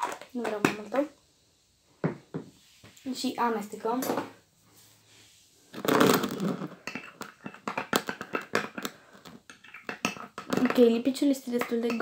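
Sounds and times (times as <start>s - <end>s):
stick tapping metal bowl: 9.6s - 12.0s.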